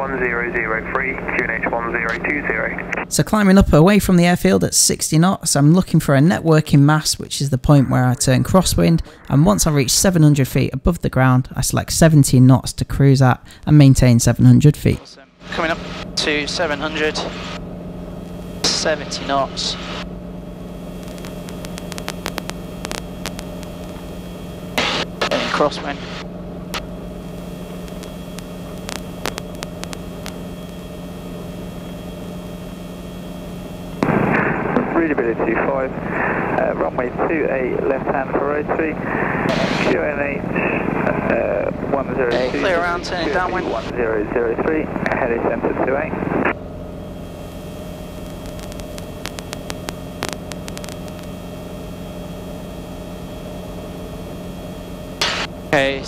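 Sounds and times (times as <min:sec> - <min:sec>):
helicopter engine and rotors droning: 0:00.0 - 0:10.4, 0:14.9 - 0:56.0
faint clicks: 0:21.0 - 0:24.0, 0:27.8 - 0:30.4, 0:48.2 - 0:51.3.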